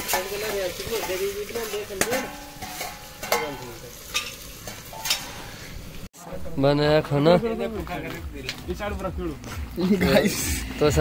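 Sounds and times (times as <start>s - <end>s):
ladle scraping a pot: 0.0s - 3.5s
onions frying in a pot: 0.0s - 6.1s.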